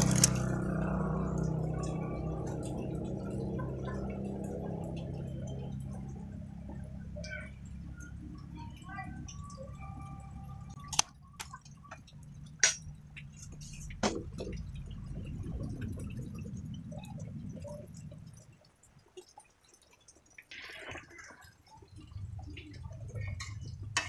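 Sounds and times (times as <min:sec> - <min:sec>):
low rumble: 0:12.1 - 0:18.6.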